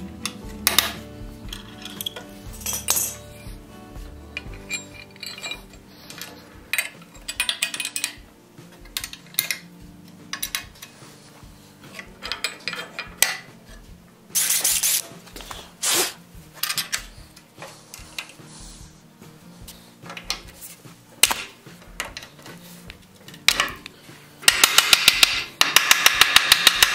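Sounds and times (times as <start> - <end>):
metal scraping: 0.0 - 21.0
faint background music: 0.0 - 26.9
metallic clinks and taps: 0.2 - 3.6, 4.3 - 11.0, 11.9 - 13.5.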